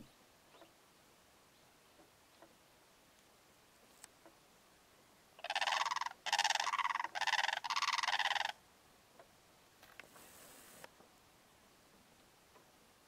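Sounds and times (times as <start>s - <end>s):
cranes calling: 5.4s - 8.6s.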